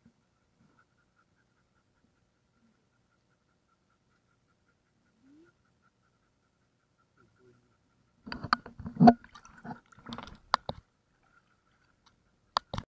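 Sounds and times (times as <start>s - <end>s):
water sloshing and splashing: 8.3s - 12.2s.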